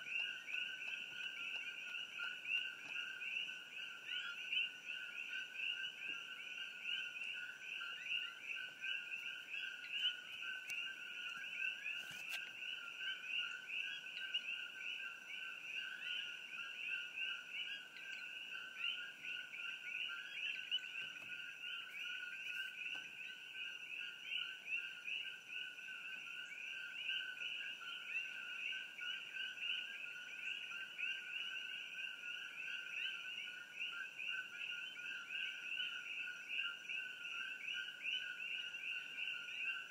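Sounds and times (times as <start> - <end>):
chorus of frogs calling: 0.0 - 39.9.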